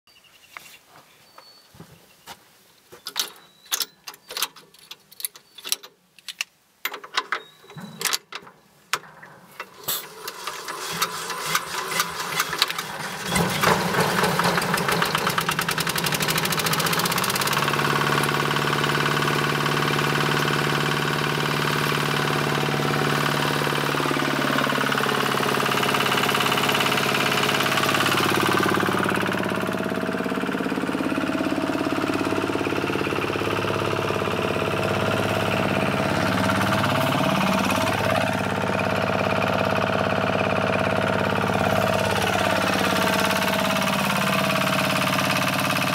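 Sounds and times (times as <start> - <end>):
handling clicks and knocks: 3.0 - 10.4
small engine starting and running: 9.0 - 45.9.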